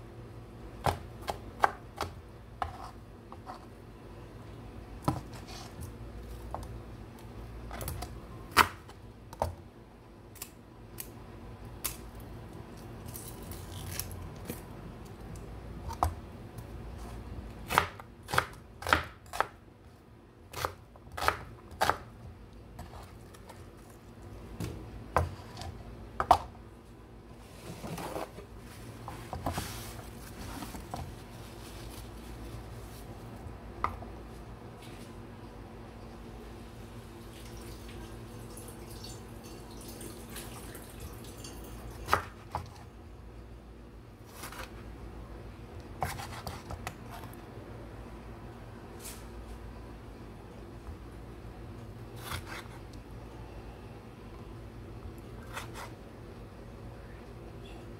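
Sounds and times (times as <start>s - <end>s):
knife chopping on wooden board: 46.0s - 46.9s.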